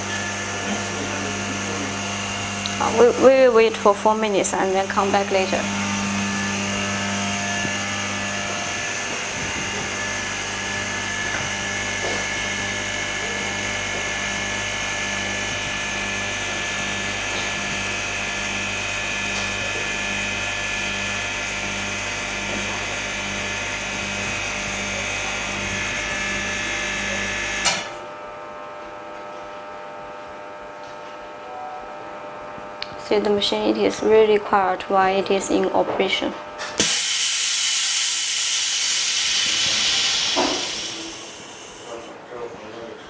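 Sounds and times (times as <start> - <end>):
laminating machine motor hum: 0.0 - 42.4.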